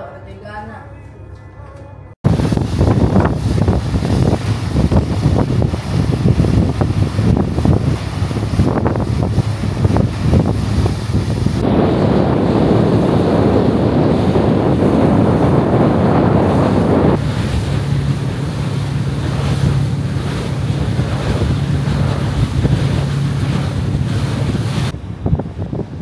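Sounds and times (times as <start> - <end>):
ship low hum: 0.0 - 26.0
water rushing past hull: 2.2 - 26.0
wind blowing on microphone: 2.2 - 26.0.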